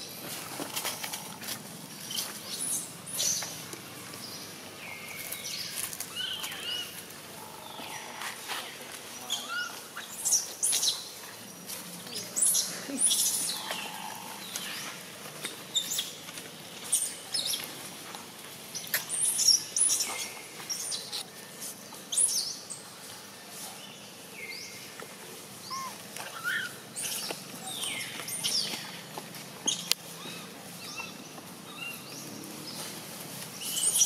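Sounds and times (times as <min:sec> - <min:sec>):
baby monkey squealing: 0:25.7 - 0:26.8.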